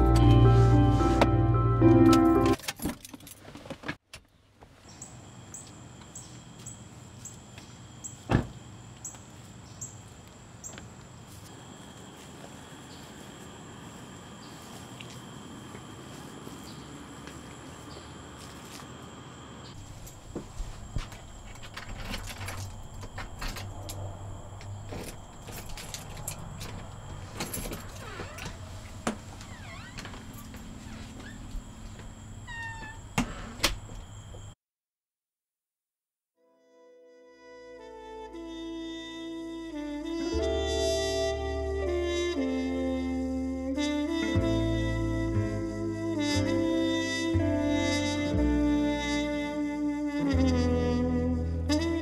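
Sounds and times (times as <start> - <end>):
music: 0.0 - 2.6, 36.4 - 52.0
night insects trilling: 4.9 - 34.6
car door thud: 8.3 - 8.5
keys jangling in door lock: 25.0 - 28.5.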